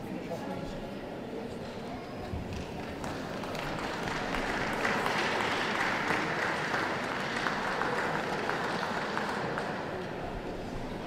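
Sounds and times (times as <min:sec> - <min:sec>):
audience applauding: 0:02.6 - 0:10.3.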